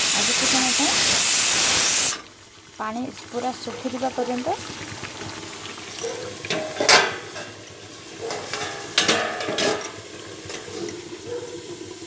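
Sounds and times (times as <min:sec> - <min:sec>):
food sizzling under lid: 0:00.0 - 0:12.0
metal spatula scraping pan: 0:06.5 - 0:07.6, 0:08.2 - 0:11.0.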